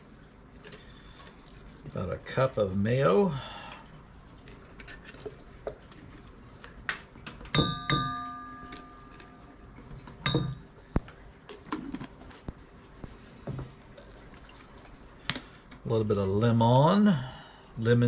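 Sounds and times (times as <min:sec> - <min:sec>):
spatula knocking on metal bowl: 0:07.5 - 0:08.4.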